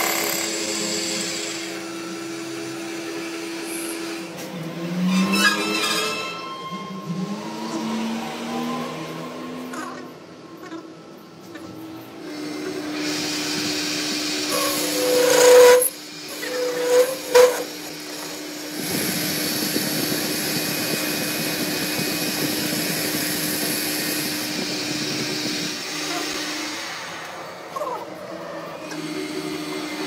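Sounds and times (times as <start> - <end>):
cutting squeals: 5.0 - 10.1, 14.3 - 18.7
lathe machine hum: 11.8 - 30.0
lathe tool bit hissing: 12.5 - 27.0.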